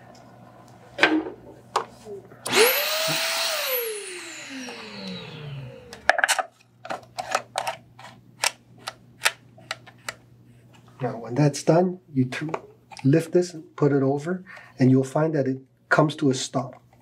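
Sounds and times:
vacuum motor running: 2.5s - 6.2s.

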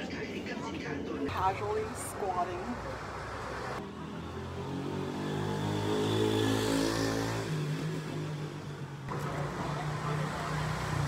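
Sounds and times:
vehicle engine humming: 0.0s - 6.5s, 7.5s - 11.0s
traffic noise: 0.0s - 11.0s.

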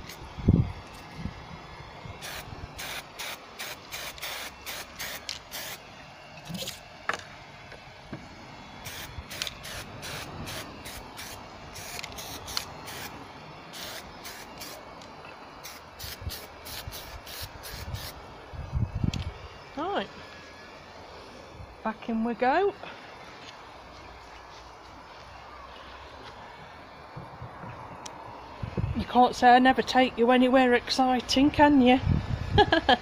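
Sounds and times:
aerosol spray can hissing: 2.2s - 5.8s, 8.8s - 14.9s, 15.6s - 18.2s.

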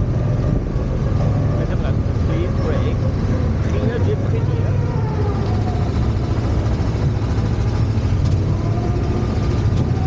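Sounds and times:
small ride car engine running: 2.6s - 10.0s.

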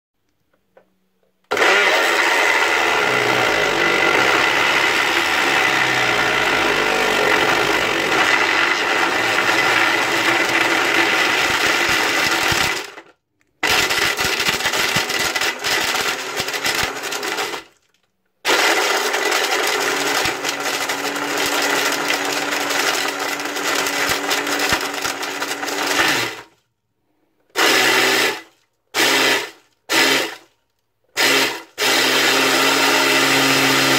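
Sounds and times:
blender motor whining: 1.5s - 13.0s, 13.6s - 17.6s, 18.5s - 26.5s, 27.6s - 30.4s, 31.2s - 33.9s
plastic balls rattling in a jar: 6.6s - 13.0s, 13.6s - 18.1s.

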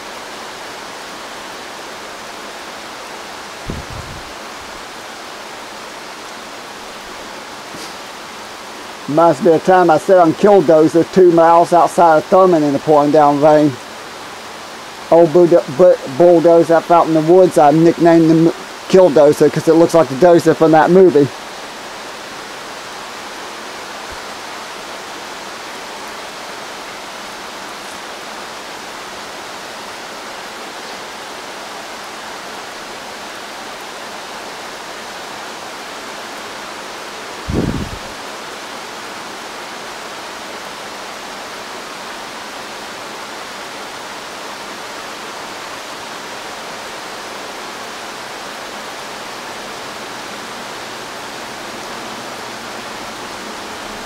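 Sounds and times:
heavy rain on foliage: 0.0s - 54.0s
low thump: 3.6s - 4.3s.

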